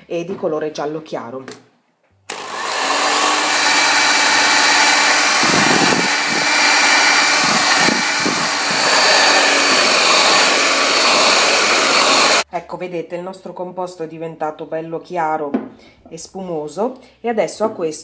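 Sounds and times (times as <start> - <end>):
electric hand mixer whining: 2.3 - 12.4.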